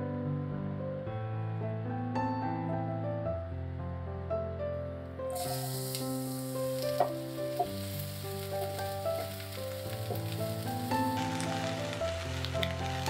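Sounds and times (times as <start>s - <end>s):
soft background music: 0.0s - 13.0s
onion sizzling in frying pan: 5.3s - 13.0s
spatula knocking on pan: 7.0s - 7.8s.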